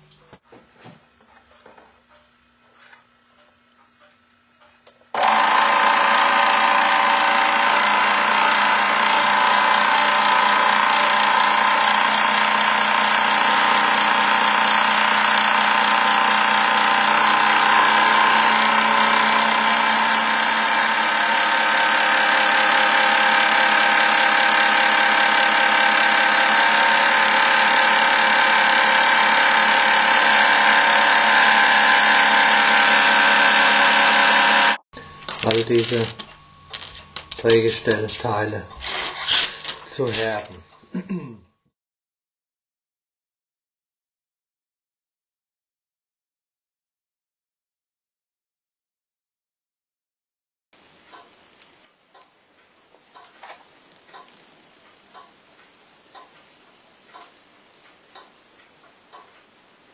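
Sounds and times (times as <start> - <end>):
machine tool motor whine: 4.6 - 41.0.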